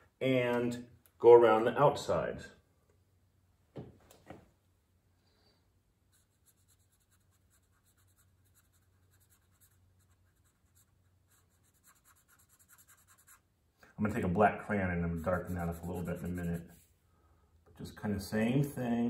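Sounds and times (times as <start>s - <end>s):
marker scratching on paper: 6.1s - 13.5s, 15.0s - 16.9s.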